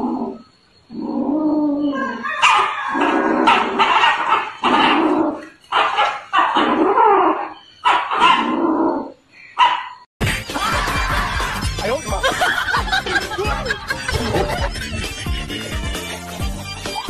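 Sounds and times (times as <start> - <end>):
young animal crying out: 0.0 - 9.2.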